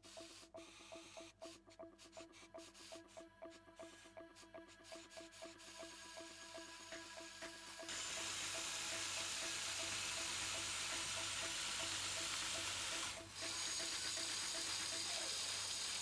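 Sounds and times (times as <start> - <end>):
faint music beat: 0.0 - 16.0.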